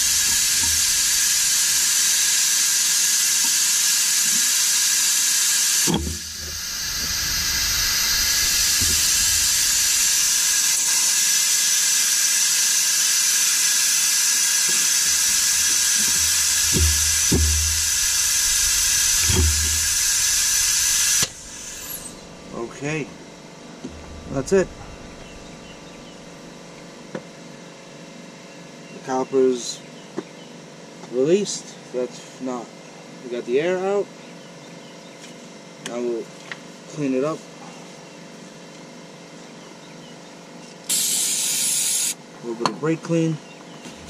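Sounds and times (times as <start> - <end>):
vacuum brake bleeder hissing: 0.0 - 23.2, 40.9 - 42.2
soft knocks: 16.0 - 20.3.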